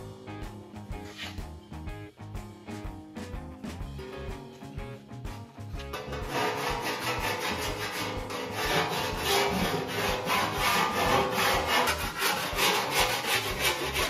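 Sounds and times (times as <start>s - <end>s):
hand file rasping on steel: 5.8s - 14.0s.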